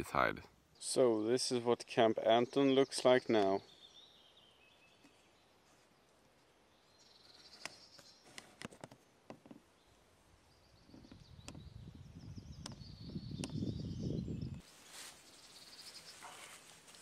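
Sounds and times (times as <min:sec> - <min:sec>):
small birds trilling: 0:09.6 - 0:14.6.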